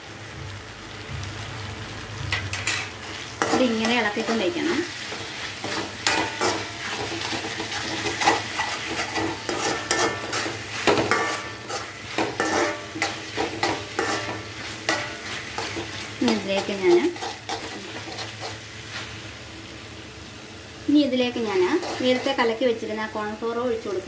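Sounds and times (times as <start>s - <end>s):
food sizzling: 0.0s - 24.0s
metal spoon scraping pan: 2.5s - 18.6s, 21.5s - 22.5s.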